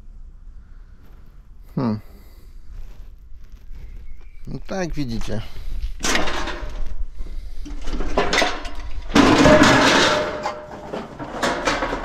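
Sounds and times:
sheet metal clattering and scraping: 6.0s - 12.0s.

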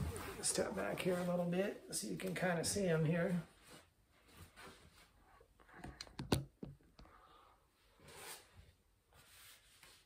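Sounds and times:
clothing rustle: 0.0s - 5.6s.

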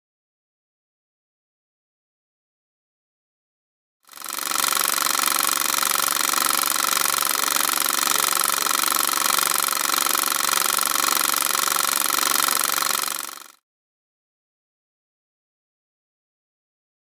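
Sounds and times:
film projector clattering: 4.1s - 13.6s.

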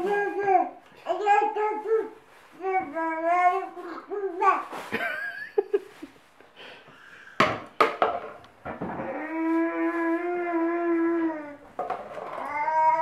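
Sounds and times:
toddler humming into tube: 8.9s - 13.0s.

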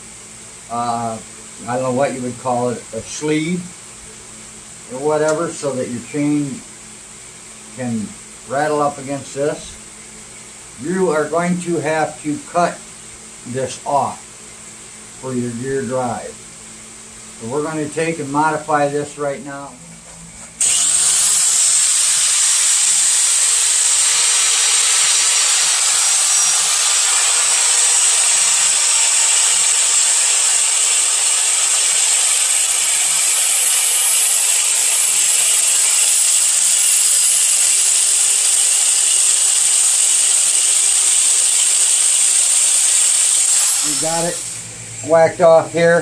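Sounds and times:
handheld grinder grinding metal: 20.6s - 44.7s.

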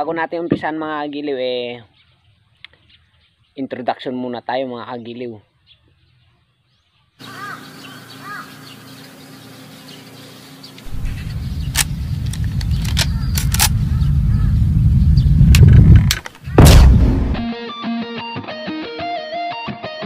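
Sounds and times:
short bird-like chirps: 7.2s - 14.6s
sharp clicks: 10.7s - 14.0s, 15.4s - 17.4s
low rumble: 10.8s - 17.4s
heavy hit: 10.9s - 17.5s.

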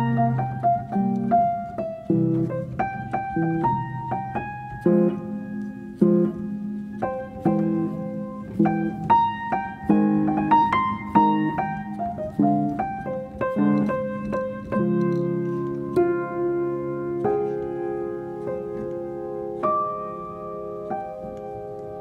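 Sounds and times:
piano music: 0.0s - 22.0s.

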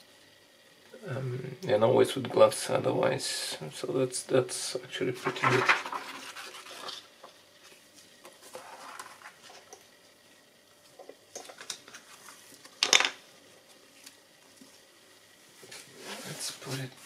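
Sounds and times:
stiff paper rustling: 5.2s - 7.0s.

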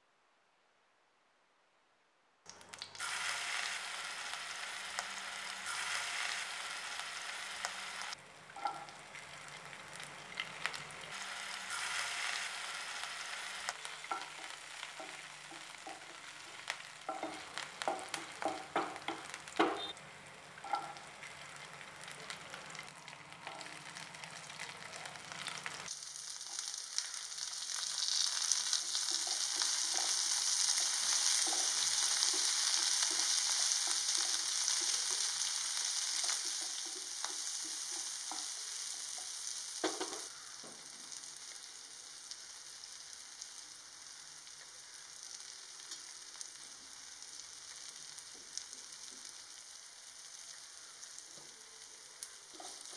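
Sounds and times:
food sizzling in hot oil: 2.5s - 52.9s
wooden spatula clicking on pan: 14.1s - 19.9s.

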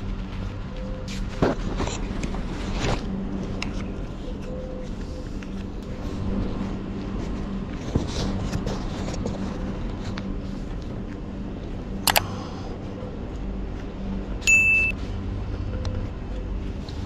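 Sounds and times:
steady low rumble: 0.0s - 17.0s
short high electronic beep: 14.4s - 15.0s.

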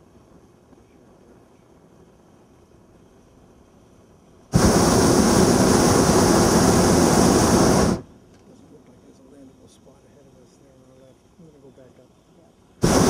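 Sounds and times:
propane burner rushing: 1.2s - 8.1s, 12.7s - 13.0s.

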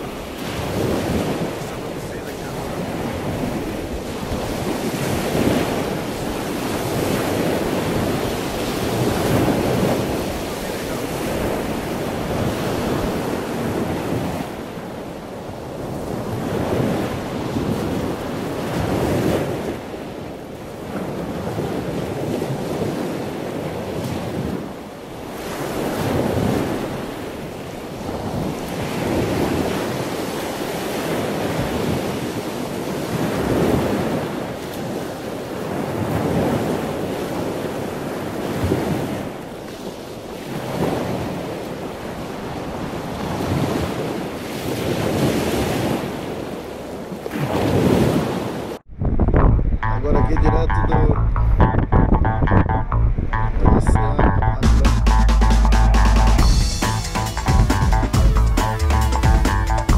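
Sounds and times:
strong wind buffeting microphone: 0.0s - 20.1s, 48.9s - 54.6s.

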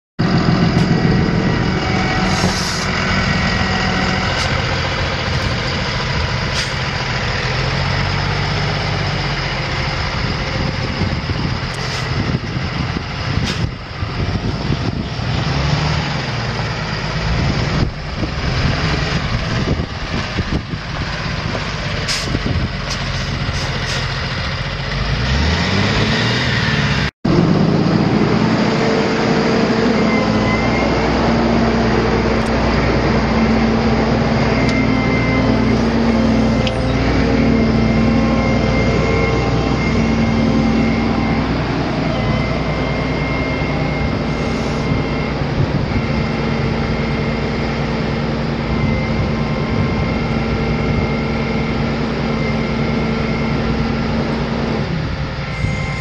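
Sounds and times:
diesel truck engine idling: 0.2s - 15.3s, 16.1s - 25.1s.

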